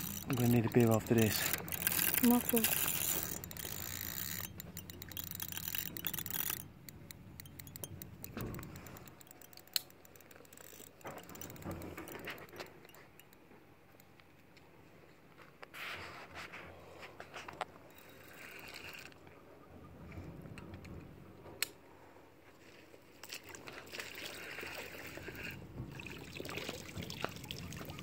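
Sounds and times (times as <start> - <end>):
fishing reel clicking: 0.0 - 13.4, 17.9 - 19.1.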